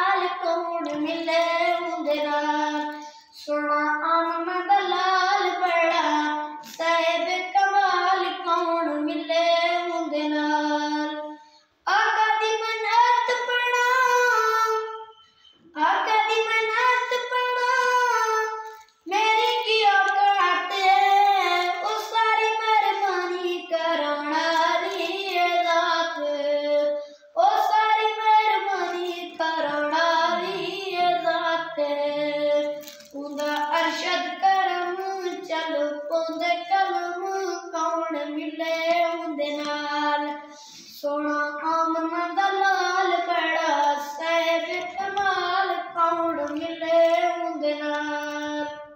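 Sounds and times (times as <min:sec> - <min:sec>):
boy singing unaccompanied: 0:00.0 - 0:48.9
boy breathing: 0:40.4 - 0:41.1.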